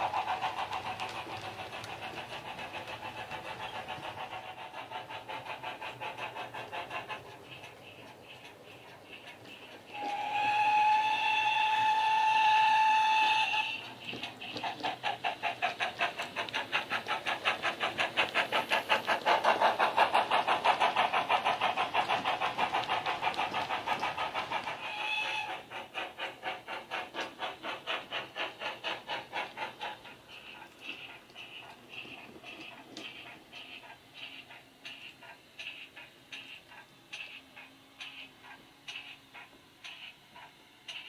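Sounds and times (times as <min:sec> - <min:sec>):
steam locomotive chuffing: 0:00.0 - 0:41.0
model train steam whistle: 0:09.9 - 0:13.9, 0:24.8 - 0:25.7.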